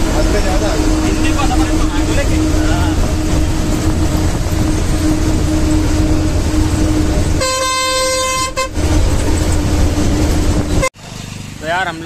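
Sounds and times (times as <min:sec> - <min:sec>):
bus engine drone: 0:00.0 - 0:12.0
road noise: 0:00.0 - 0:12.0
horn blast: 0:00.8 - 0:09.1.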